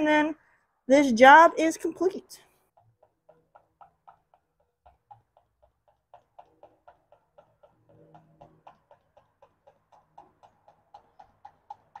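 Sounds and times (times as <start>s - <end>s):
motor oil glugging from bottle: 2.8s - 12.0s.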